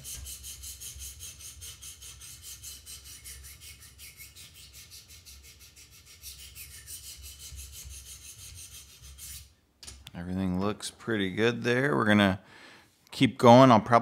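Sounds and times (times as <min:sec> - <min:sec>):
sharpening stones rasping on blade: 0:00.0 - 0:09.5.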